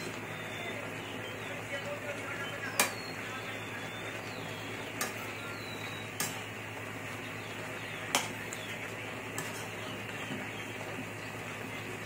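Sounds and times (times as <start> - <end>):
metal spoon stirring in a wok: 9.3 - 9.8.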